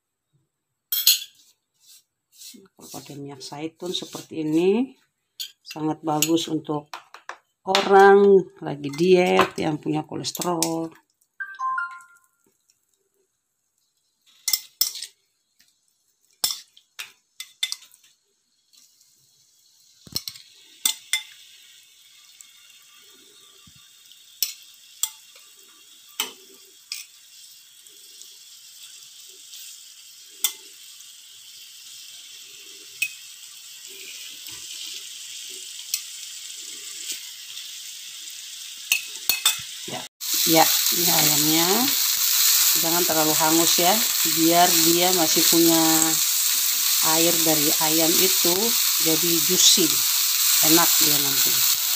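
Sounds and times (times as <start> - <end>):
chicken sizzling on grill: 0.9 - 4.9, 12.2 - 51.9.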